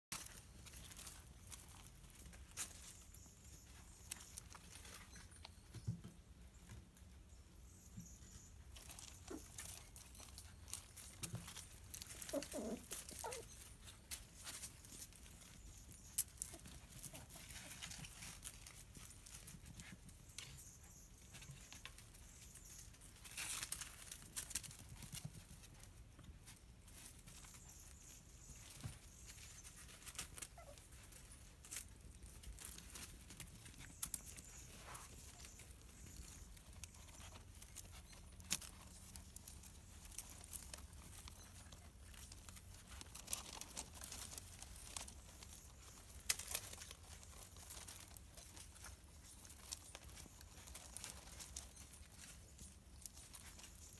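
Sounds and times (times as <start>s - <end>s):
puppy claws clicking on concrete: 8.8s - 20.5s.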